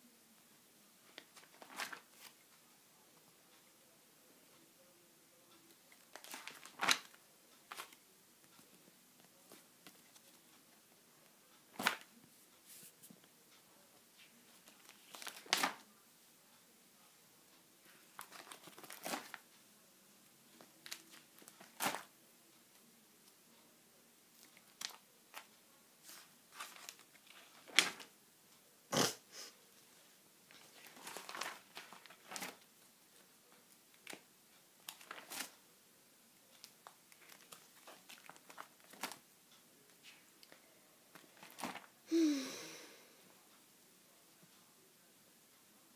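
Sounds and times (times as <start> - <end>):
plastic pages crinkling: 1.1 - 2.4, 5.9 - 8.0, 11.7 - 12.1, 14.6 - 15.9, 18.1 - 19.4, 20.6 - 22.1, 24.4 - 25.5, 26.1 - 28.1, 30.5 - 32.7, 34.8 - 35.6, 36.6 - 39.2, 40.0 - 41.9.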